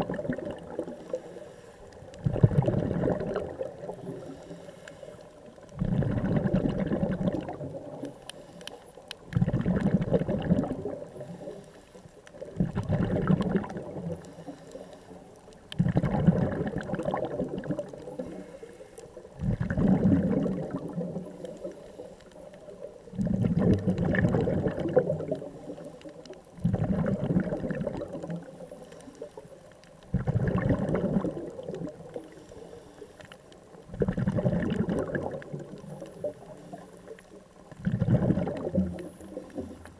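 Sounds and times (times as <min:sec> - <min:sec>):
underwater bubbles gurgling: 0:00.0 - 0:39.9.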